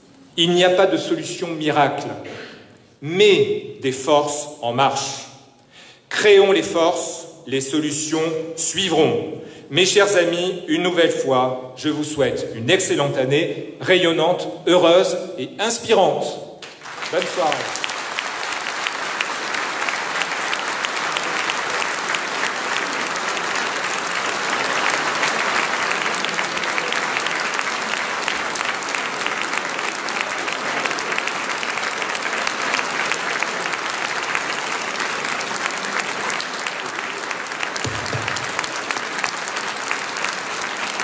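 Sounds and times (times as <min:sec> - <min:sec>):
audience applauding: 0:16.6 - 0:41.0.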